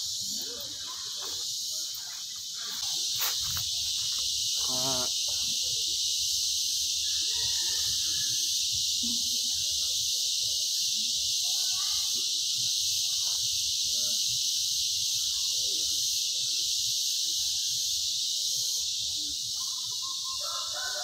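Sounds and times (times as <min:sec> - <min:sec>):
high-pitched insect chorus: 0:00.0 - 0:21.0.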